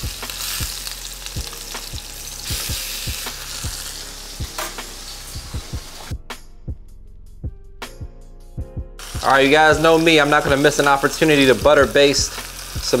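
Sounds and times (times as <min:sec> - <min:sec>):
chicken sizzling in a skillet: 0:00.0 - 0:06.1, 0:09.0 - 0:13.0.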